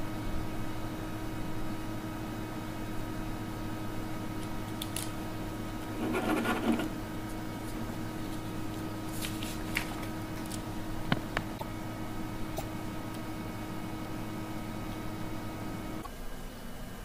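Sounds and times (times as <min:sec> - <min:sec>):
pen scribbling on paper: 0:06.0 - 0:06.9.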